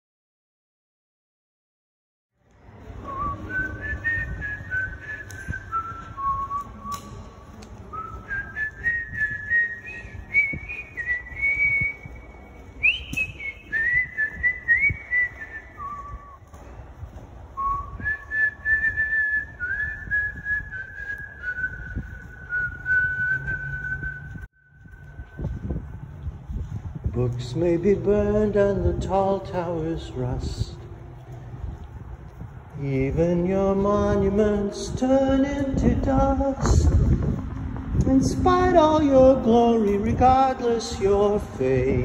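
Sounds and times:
low rumble: 2.4 - 42.0
person whistling a melody: 3.0 - 7.3, 7.9 - 16.4, 17.6 - 25.6.

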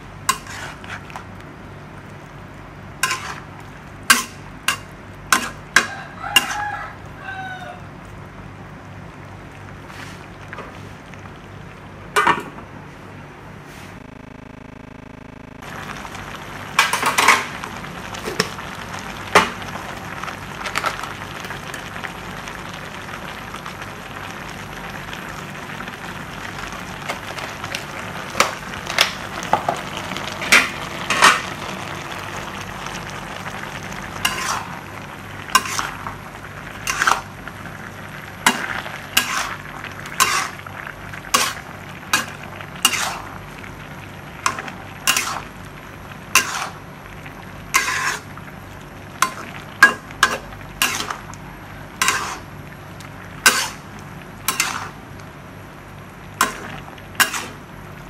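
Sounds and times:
food sizzling in a pan: 0.0 - 7.9, 15.6 - 58.0
spoon knocking and scraping pan: 4.1 - 6.6, 49.2 - 51.2, 52.0 - 52.4, 53.5 - 53.8, 54.5 - 54.9.

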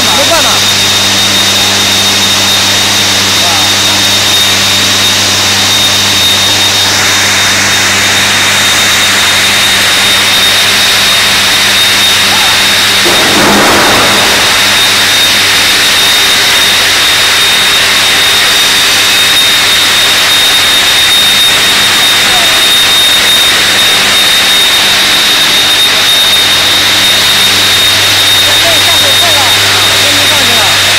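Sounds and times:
high-pitched whine: 0.0 - 30.9
industrial machinery roar: 0.0 - 30.9
low electrical hum: 13.0 - 15.7.

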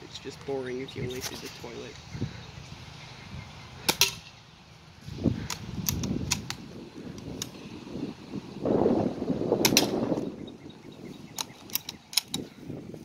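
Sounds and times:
bb gun firing: 3.9 - 4.3, 9.6 - 10.1
gun clicks and rattles: 5.4 - 7.6, 9.6 - 10.0, 11.3 - 12.6.

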